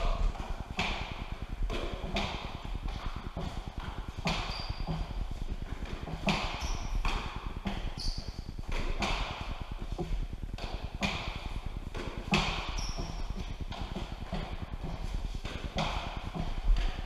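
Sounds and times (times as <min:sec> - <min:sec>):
ball hitting court walls: 0:00.0 - 0:05.1, 0:05.8 - 0:17.0
trainers squeaking on floor: 0:03.0 - 0:10.0, 0:12.3 - 0:15.2.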